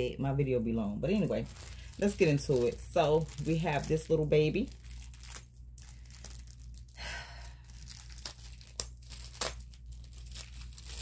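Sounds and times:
plastic packaging crinkling: 0:00.6 - 0:11.0.

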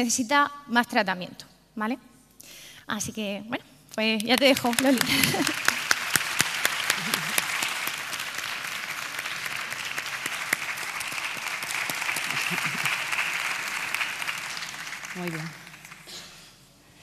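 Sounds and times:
large audience applauding: 0:04.4 - 0:16.2.

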